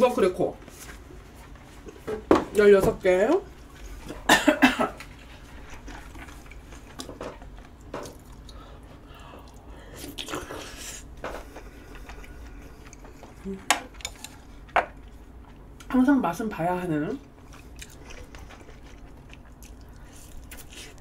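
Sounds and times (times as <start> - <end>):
chewing: 5.0 - 15.9, 17.2 - 21.0.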